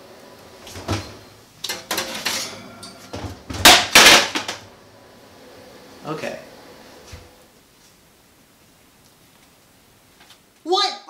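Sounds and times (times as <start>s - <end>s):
cookware knocking and clattering: 0.9s - 4.6s.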